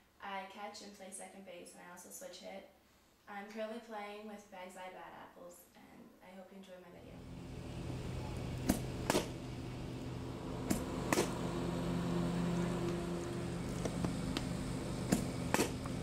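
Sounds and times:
steady low hum: 7.0 - 16.0
bat cracking on softball: 8.0 - 16.0.

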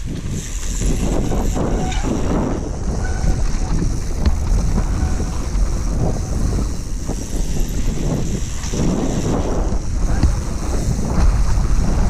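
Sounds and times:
bike knocks and rattles: 0.0 - 12.0
low rumble of bike tyres: 0.0 - 12.0
wind buffeting microphone: 0.0 - 12.0.

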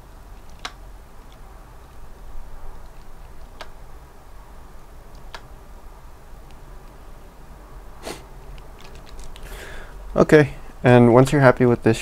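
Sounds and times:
faint low room hum: 0.0 - 12.0
mouse and keyboard clicks: 0.4 - 1.4, 2.7 - 3.8, 5.1 - 5.5, 8.5 - 9.5.

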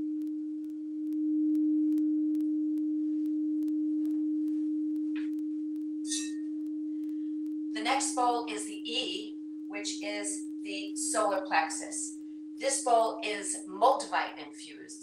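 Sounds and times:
singing bowl ringing: 5.9 - 13.8.

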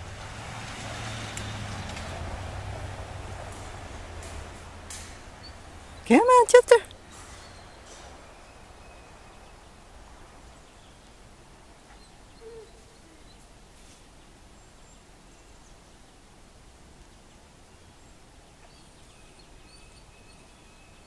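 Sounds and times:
low background hiss: 2.1 - 21.0
faint bird chirps: 11.9 - 13.5.

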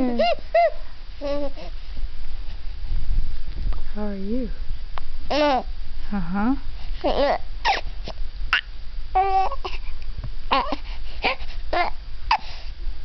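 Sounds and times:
infant cooing: 0.1 - 1.7, 5.3 - 5.7, 8.6 - 9.8, 10.5 - 12.5.

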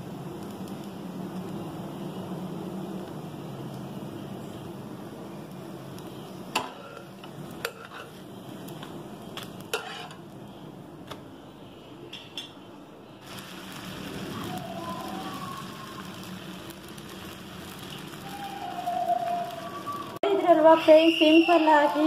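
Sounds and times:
metal spatula scraping pan: 6.6 - 8.2, 9.7 - 10.2.

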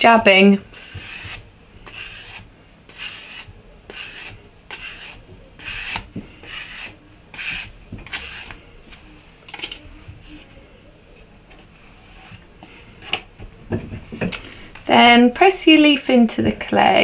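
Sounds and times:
card scraping over clay: 0.6 - 9.0.

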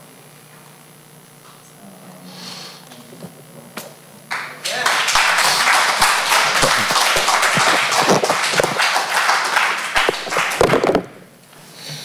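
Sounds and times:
audience applauding: 4.3 - 11.2.

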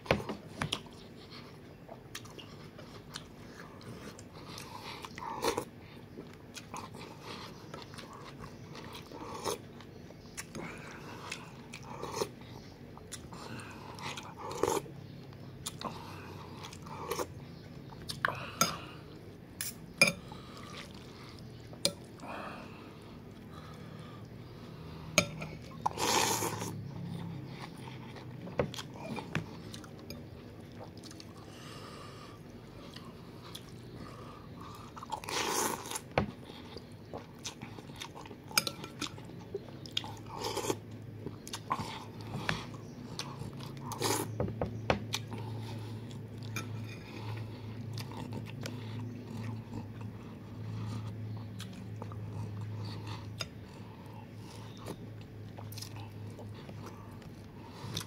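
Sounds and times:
chewing and mouth sounds: 45.0 - 58.0.

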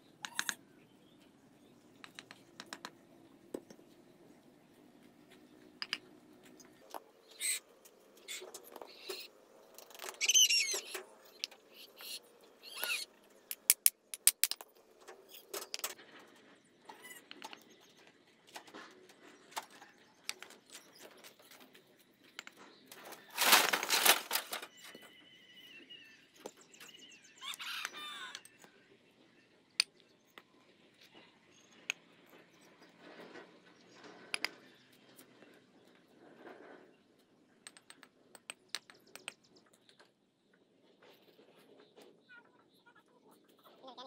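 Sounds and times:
bricks clinking and knocking: 13.5 - 14.7.

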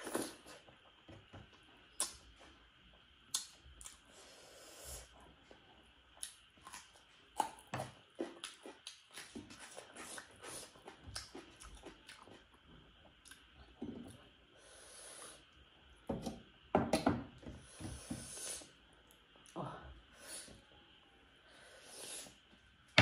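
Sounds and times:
person chewing and smacking food: 0.0 - 4.0, 5.4 - 14.3
breathing through nose: 14.6 - 15.4, 17.6 - 18.8.

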